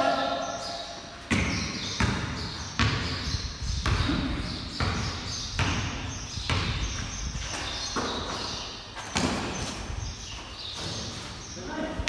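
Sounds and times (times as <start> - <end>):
basketball bouncing on concrete: 1.3 - 8.5, 9.1 - 9.9.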